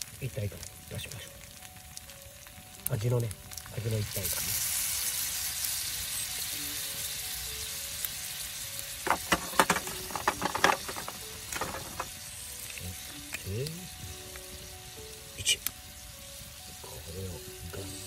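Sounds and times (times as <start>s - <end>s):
food sizzling in a pan: 0.0s - 18.0s
sharp pops and crackles: 8.9s - 16.7s.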